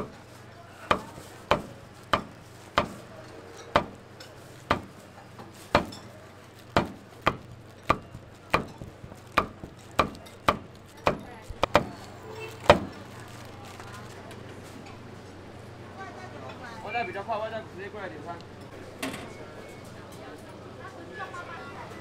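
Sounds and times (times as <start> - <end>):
cleaver chopping on cutting board: 0.9 - 3.0, 4.7 - 5.0, 5.7 - 6.0, 6.8 - 11.9.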